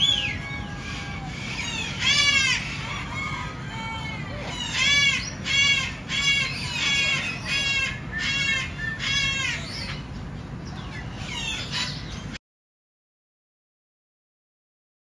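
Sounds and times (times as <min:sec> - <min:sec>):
parrot calling: 0:00.0 - 0:10.1, 0:10.8 - 0:12.4.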